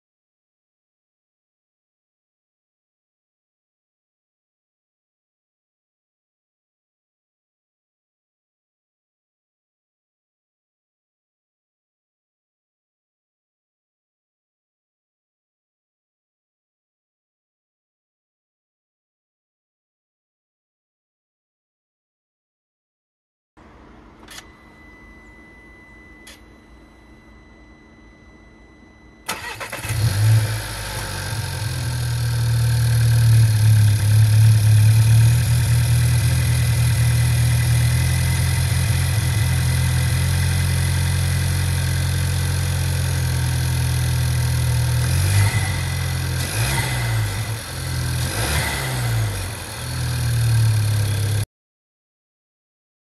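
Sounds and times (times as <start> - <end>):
car engine starting and idling: 29.2 - 51.4.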